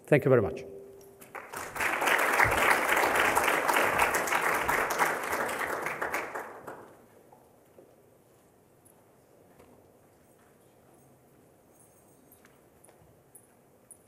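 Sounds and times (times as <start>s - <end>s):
audience applauding: 1.2s - 7.1s.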